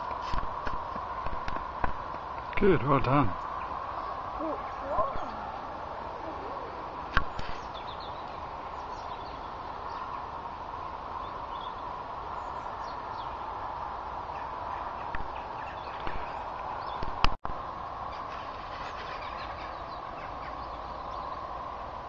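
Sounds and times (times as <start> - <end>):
pony hooves knocking: 0.0 - 2.6
outdoor background noise: 0.0 - 22.0.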